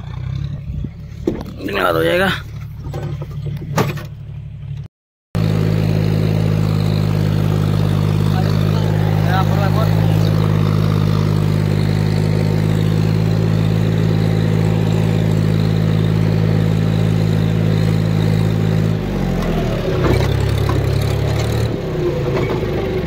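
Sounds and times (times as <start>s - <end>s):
diesel tractor engine running: 0.0s - 23.0s.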